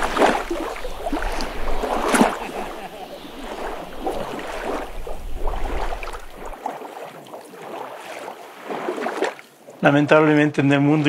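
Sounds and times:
wind rumble on microphone: 0.0s - 6.6s
water lapping at shore: 0.0s - 11.0s.

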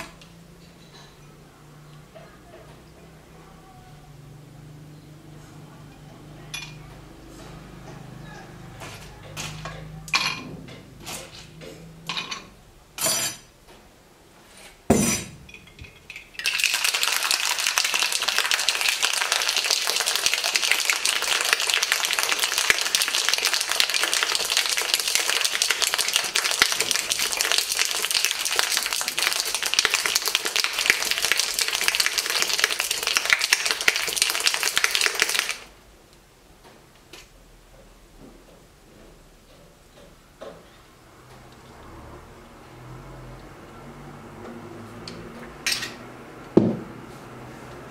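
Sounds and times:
clinks and knocks: 9.3s - 13.4s, 14.9s - 16.5s
ice rattling in cocktail shaker: 15.7s - 35.7s.

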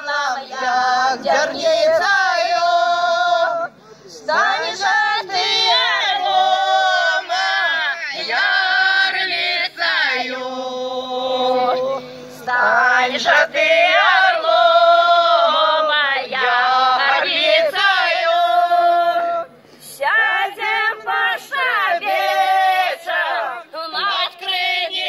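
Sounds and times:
women's ensemble singing folk song: 0.0s - 25.0s.

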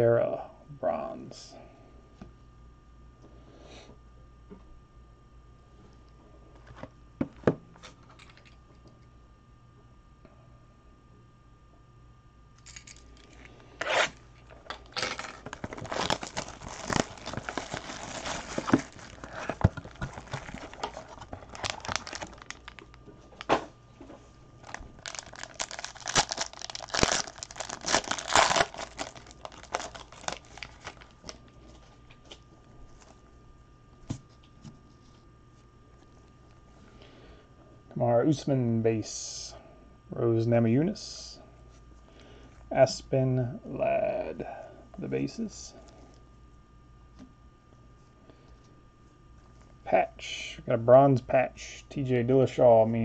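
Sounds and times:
plastic wrapping tearing: 13.3s - 23.5s, 24.6s - 31.5s.

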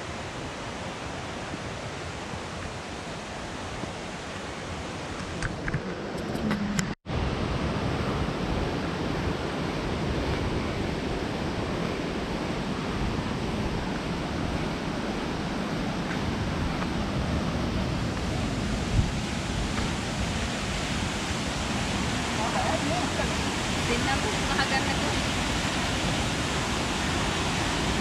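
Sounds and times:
waterfall roaring: 0.0s - 28.0s.

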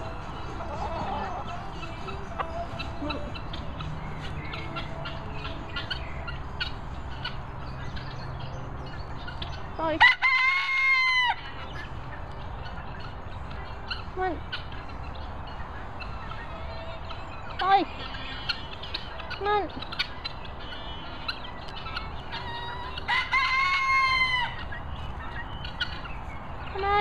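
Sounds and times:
rooster crowing: 10.0s - 11.4s, 22.4s - 24.7s.

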